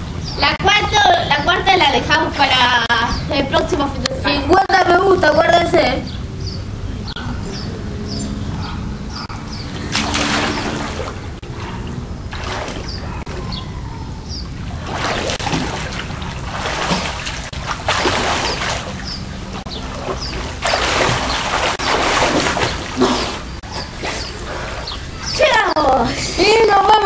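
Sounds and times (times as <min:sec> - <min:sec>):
water splashing in a pool: 0:09.8 - 0:13.4, 0:14.6 - 0:24.9.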